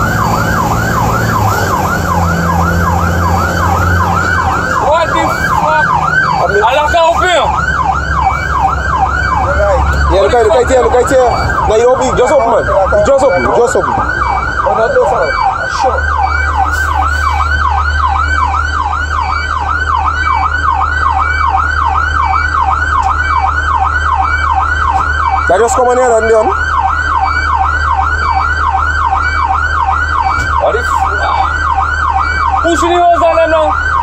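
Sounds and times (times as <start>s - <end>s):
low engine drone: 0.0s - 25.4s
electronic siren yelping: 0.0s - 34.0s.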